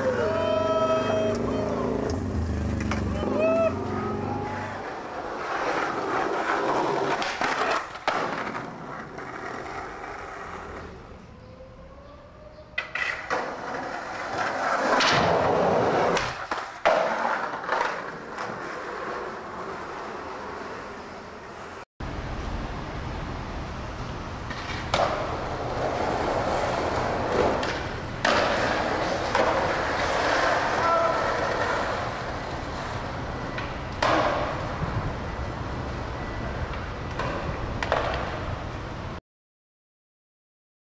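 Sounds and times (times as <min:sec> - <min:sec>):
skateboard wheels rolling on tiles: 0:00.0 - 0:11.1, 0:12.7 - 0:21.8, 0:24.5 - 0:36.0
skateboard clacks and slaps: 0:04.4 - 0:10.9, 0:12.8 - 0:21.2, 0:24.5 - 0:34.8, 0:36.7 - 0:38.5.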